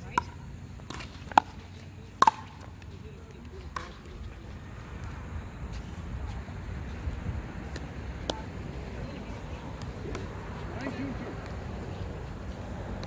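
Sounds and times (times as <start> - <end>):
paddle hitting plastic ball: 2.2 - 2.7.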